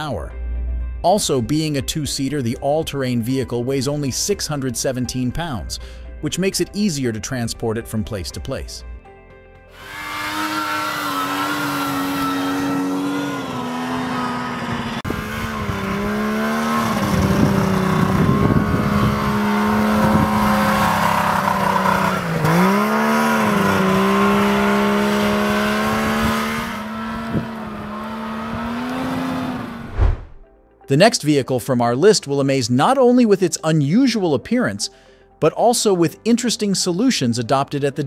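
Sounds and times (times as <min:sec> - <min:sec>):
tracked vehicle engine running hard: 0:09.7 - 0:30.4.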